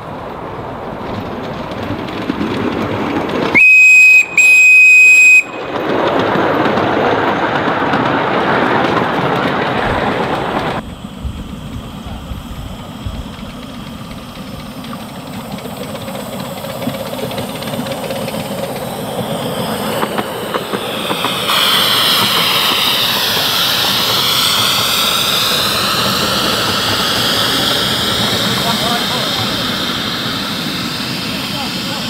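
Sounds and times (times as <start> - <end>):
train wheels on track: 0.0 - 32.0
steam hissing: 9.8 - 32.0.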